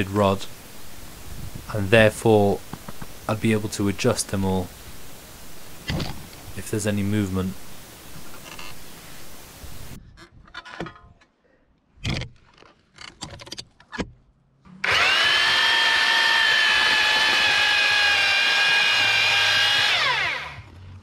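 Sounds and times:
earth auger whining: 0:14.7 - 0:21.0.

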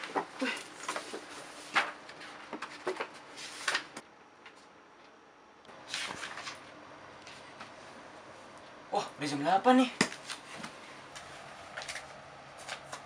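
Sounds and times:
book pages flipping: 0:00.0 - 0:04.7, 0:05.8 - 0:07.8, 0:10.1 - 0:13.0.

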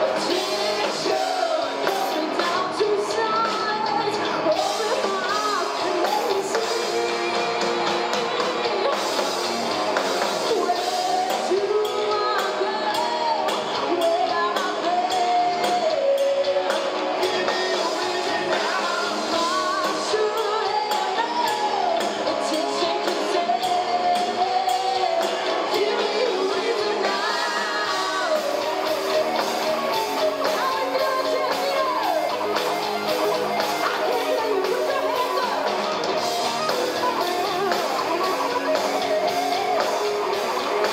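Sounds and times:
drum kit beats: 0:00.0 - 0:40.9
electric guitars: 0:00.0 - 0:40.9
woman singing lead: 0:00.0 - 0:40.9.

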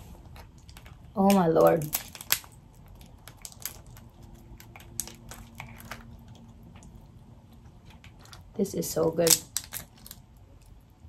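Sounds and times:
shells cracking by hand: 0:00.6 - 0:06.9, 0:09.2 - 0:10.8.

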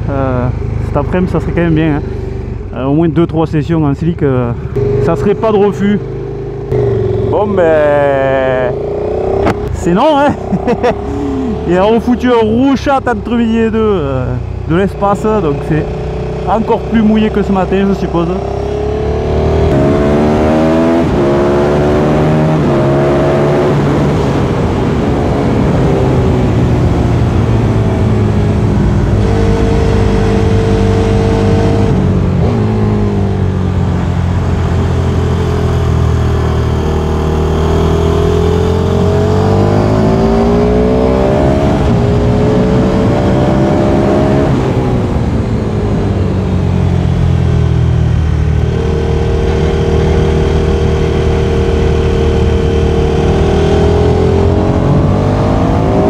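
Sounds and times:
motorcycle engine revving: 0:04.5 - 0:56.0
wind noise: 0:18.5 - 0:36.8.

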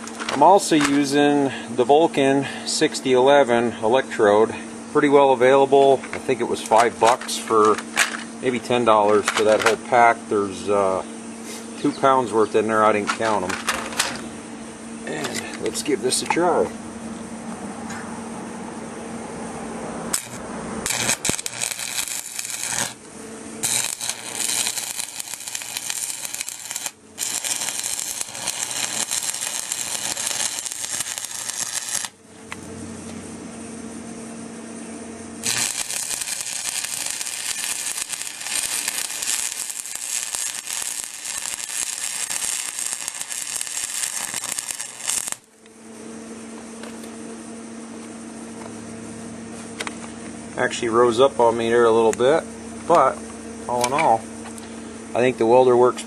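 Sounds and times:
electrical hum: 0:00.0 - 0:56.0
welding arc crackling: 0:05.6 - 0:10.0, 0:20.1 - 0:32.2, 0:35.4 - 0:45.6.

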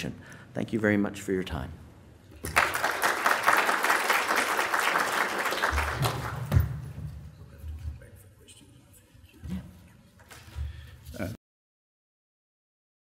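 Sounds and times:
audience applauding: 0:02.4 - 0:06.8.

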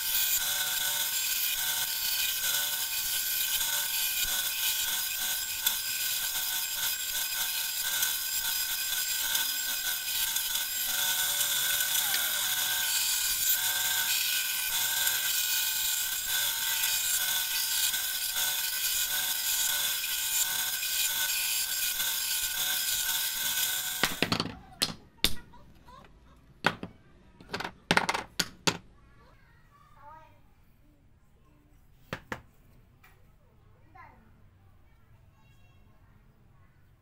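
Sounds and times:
bandsaw cutting wood: 0:00.0 - 0:24.3.

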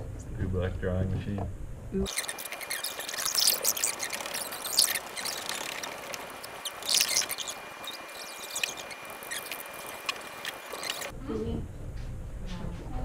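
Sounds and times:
light rubbing and scraping: 0:02.1 - 0:11.1.

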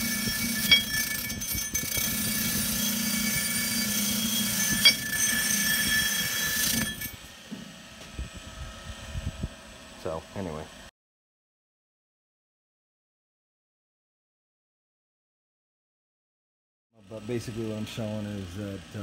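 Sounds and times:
wire wheel scouring steel: 0:00.0 - 0:07.3
grinder motor hum: 0:00.0 - 0:10.9, 0:17.0 - 0:19.0.

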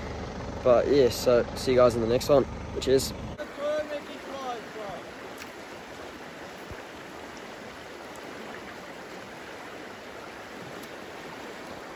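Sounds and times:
river water rushing: 0:03.4 - 0:11.9.

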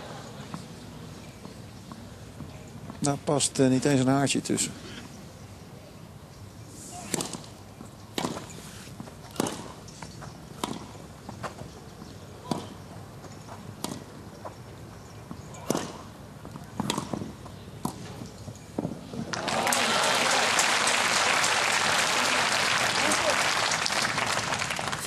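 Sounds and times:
tennis racket hitting ball: 0:07.0 - 0:07.4, 0:08.1 - 0:08.5, 0:09.3 - 0:09.8, 0:10.6 - 0:11.0, 0:13.8 - 0:14.1, 0:16.8 - 0:18.1
tennis ball bouncing: 0:08.1 - 0:11.7, 0:12.4 - 0:12.8, 0:13.8 - 0:14.6, 0:15.3 - 0:19.3.

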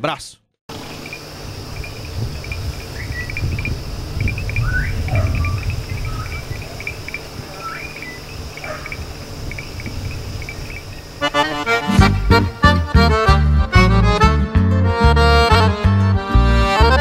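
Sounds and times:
crickets chirping: 0:00.7 - 0:12.6
short rising calls: 0:00.7 - 0:12.6
steady low rumble: 0:01.4 - 0:11.2.

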